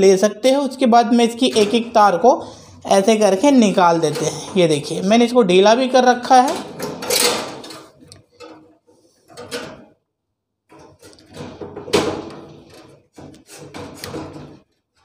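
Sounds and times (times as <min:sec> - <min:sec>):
scraping and knocking in metal box: 0:06.3 - 0:10.0, 0:10.7 - 0:14.8.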